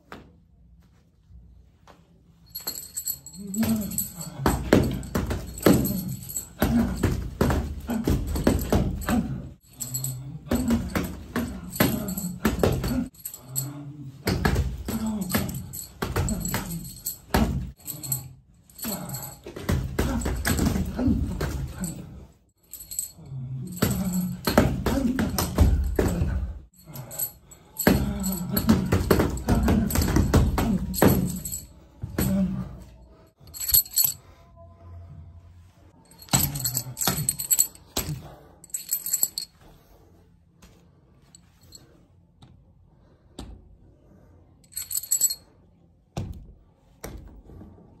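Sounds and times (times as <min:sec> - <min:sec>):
fists striking training dummy: 0:03.5 - 0:09.9, 0:10.5 - 0:13.2, 0:14.2 - 0:17.8, 0:18.8 - 0:21.8, 0:23.7 - 0:26.6, 0:27.8 - 0:32.6
short metallic jingles: 0:33.5 - 0:34.2.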